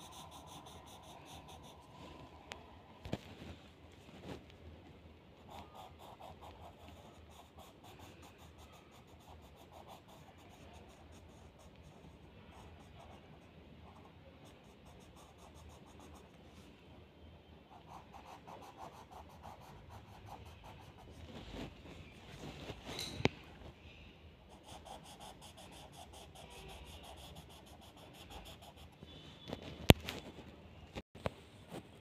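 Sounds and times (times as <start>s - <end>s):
pencil scratching on paper: 0.0s - 2.4s, 5.4s - 16.4s, 17.7s - 21.8s, 24.5s - 29.5s.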